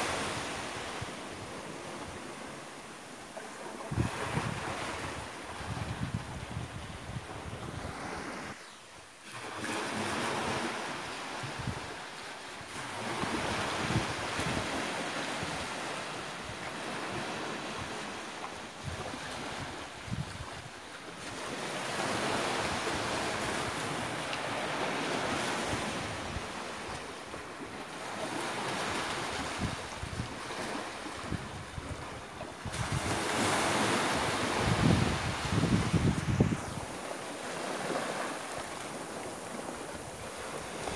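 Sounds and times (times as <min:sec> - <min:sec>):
waves breaking on a beach: 0:00.0 - 0:40.9
wind buffeting microphone: 0:03.8 - 0:08.6, 0:18.8 - 0:20.7, 0:29.3 - 0:40.9.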